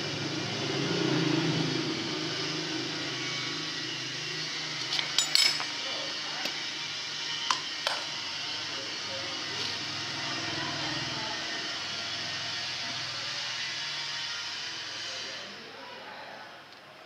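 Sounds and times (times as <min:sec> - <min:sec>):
metal tool clinking on metal: 0:04.9 - 0:05.8.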